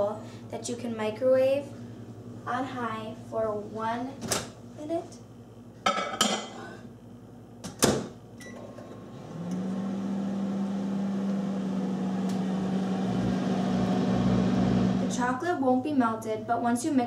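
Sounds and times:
microwave humming: 5.3 - 16.7.

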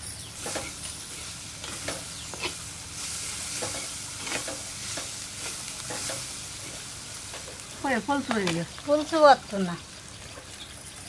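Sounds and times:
curry sizzling in oil: 0.0 - 11.0
ladle clinking and scraping pan: 0.4 - 2.7, 3.5 - 6.8.

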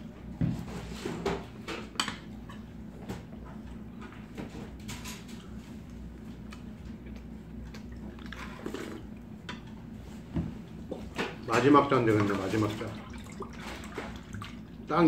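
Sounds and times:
steady low hum: 0.0 - 15.0
soft chewing and biting: 5.2 - 9.9.

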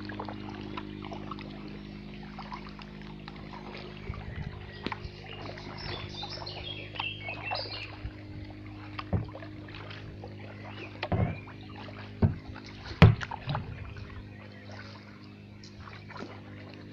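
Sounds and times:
paddle dipping in water: 0.0 - 16.9
steady low hum: 0.0 - 16.9
sharp knocks: 9.1 - 9.4, 11.0 - 11.4, 12.2 - 13.6.

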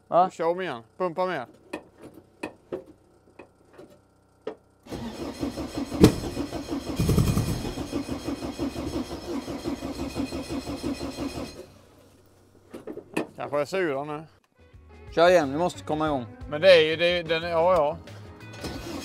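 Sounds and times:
engine cranking by starter: 4.9 - 12.2, 18.5 - 19.0.

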